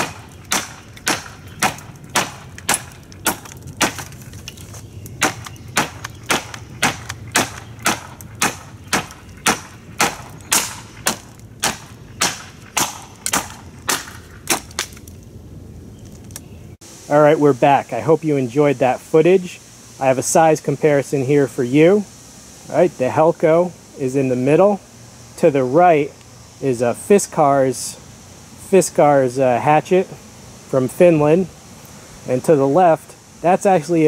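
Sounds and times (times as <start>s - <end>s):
hatchet chopping into wood: 0.0s - 4.2s, 5.2s - 15.0s.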